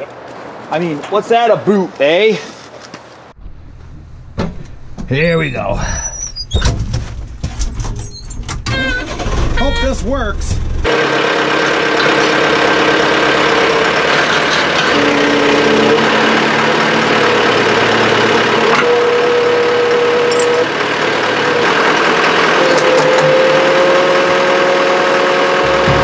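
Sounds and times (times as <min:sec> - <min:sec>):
diesel engine under load: 0:03.4 - 0:26.0
hydraulic whine: 0:10.6 - 0:26.0.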